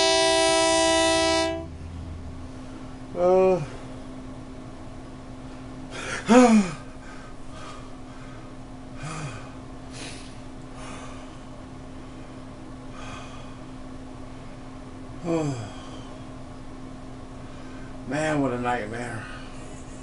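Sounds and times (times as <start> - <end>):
air conditioner humming: 0.0 - 20.0
man grunting: 3.2 - 3.8, 6.0 - 6.9, 15.2 - 15.9
man breathing hard: 5.6 - 13.8, 15.2 - 16.4, 19.2 - 19.7
man gasping cry: 5.9 - 7.0, 9.0 - 10.3, 15.2 - 16.2.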